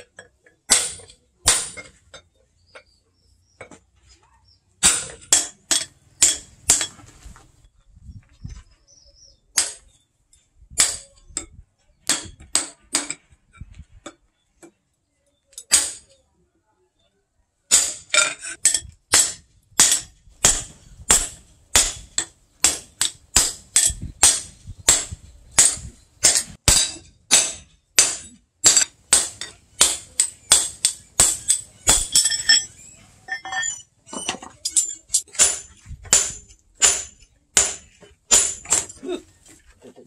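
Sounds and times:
hammer striking hot steel on anvil: 0.7 - 1.9, 4.8 - 6.9, 17.7 - 32.7, 34.6 - 39.0
light metal clinks: 30.2 - 35.3.

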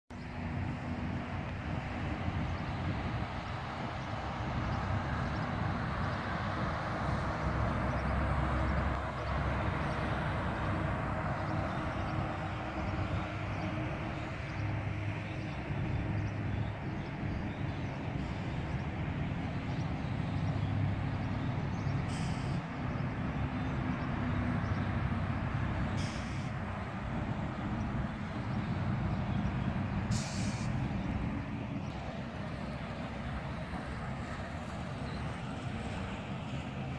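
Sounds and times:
car engine and tyre rumble: 0.1 - 36.9
broad even hiss: 26.0 - 26.5, 30.1 - 30.8.

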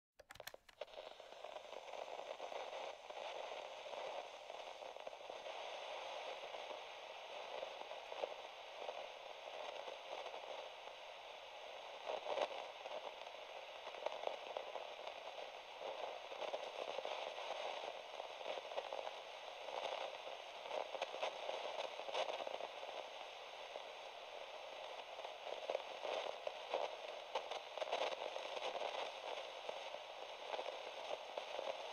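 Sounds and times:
sharp pops: 0.2 - 1.0
steady crackling hissing noise: 0.2 - 31.9.

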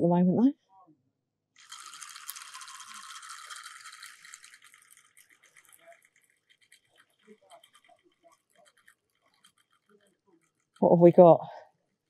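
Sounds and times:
fishing reel whirring: 1.6 - 10.8.

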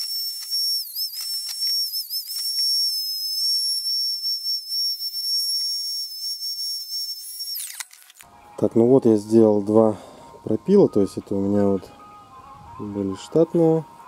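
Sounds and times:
rotary tool whining: 0.0 - 8.3.

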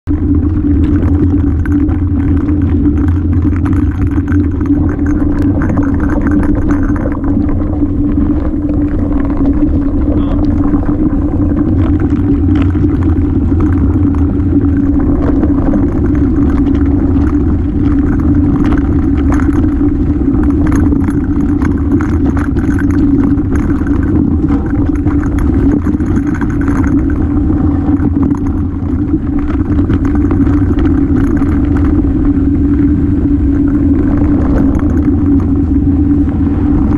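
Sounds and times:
bike rumbling on rocky trail: 0.0 - 36.9
tyres rattling over loose rocks: 0.2 - 32.9, 33.5 - 35.7.

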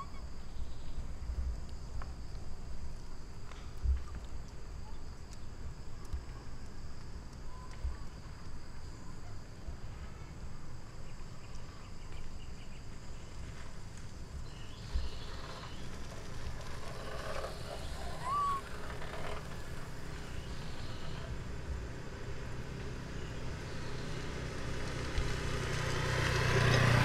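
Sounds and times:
high-pitched insect drone: 14.5 - 21.5
rising-then-falling chirp: 17.0 - 19.4
faint mid-pitched calls: 17.6 - 19.5.

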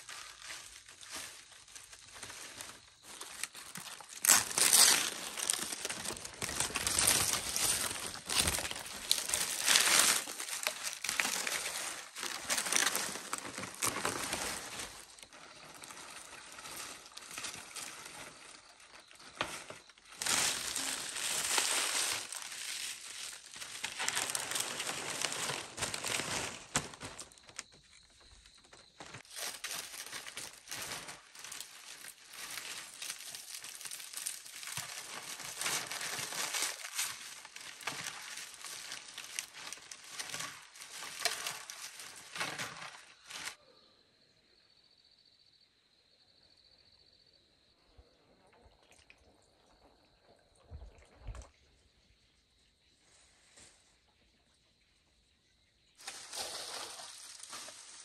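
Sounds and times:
crinkling and rustling: 0.0 - 43.6, 56.0 - 58.0.

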